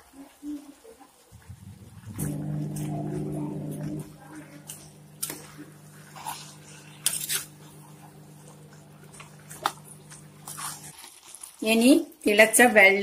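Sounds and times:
steady low hum: 1.3s - 10.9s.

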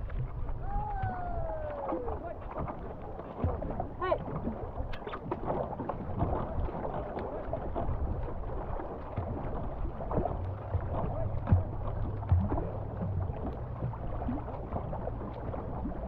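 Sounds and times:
paddles dipping in water: 0.0s - 16.0s
water rushing past hull: 0.0s - 16.0s
water splashes: 0.0s - 16.0s
wind on microphone: 0.0s - 16.0s.

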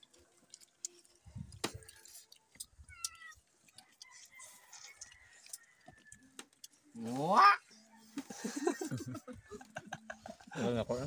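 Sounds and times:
crab shells cracking: 0.0s - 6.8s
cat meowing: 2.8s - 3.4s.

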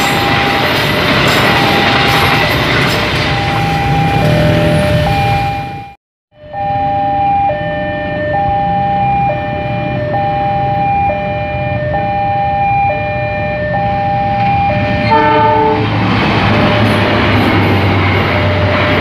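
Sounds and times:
level crossing warning alarm: 0.0s - 16.0s, 17.9s - 19.0s
brief differently pitched tone: 3.4s - 5.9s.

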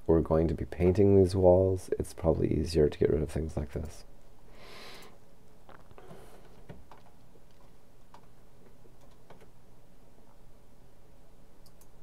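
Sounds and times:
soft hiss: 0.0s - 12.0s
computer mouse clicks: 11.6s - 12.0s.

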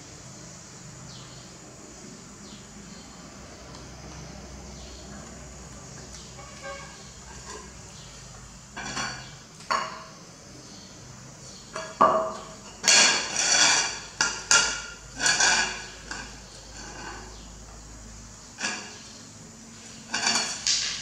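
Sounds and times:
plate clattering on tiled floor: 8.8s - 10.1s, 11.7s - 17.2s, 20.1s - 21.0s.

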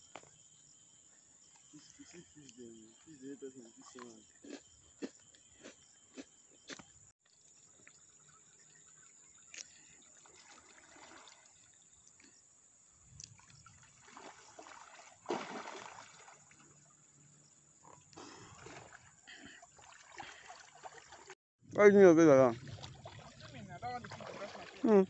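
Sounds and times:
water sloshing and splashing: 7.3s - 12.3s, 13.0s - 21.4s, 22.2s - 25.0s.

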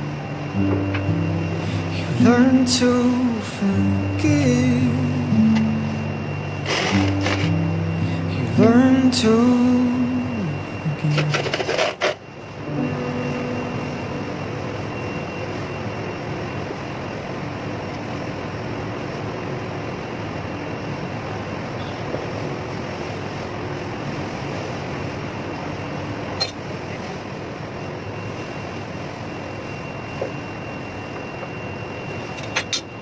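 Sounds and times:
mechanical background noise: 0.0s - 33.0s.

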